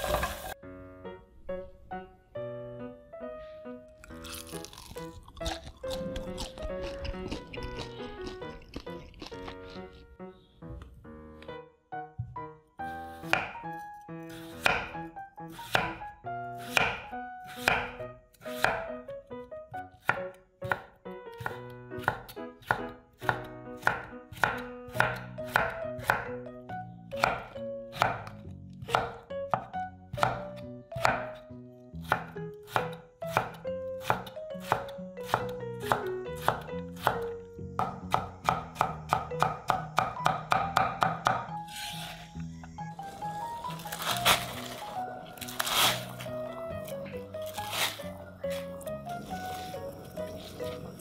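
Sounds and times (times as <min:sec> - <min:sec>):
knife chopping on a cutting board: 0:13.2 - 0:18.9, 0:20.0 - 0:26.2, 0:27.2 - 0:31.4, 0:32.0 - 0:42.2.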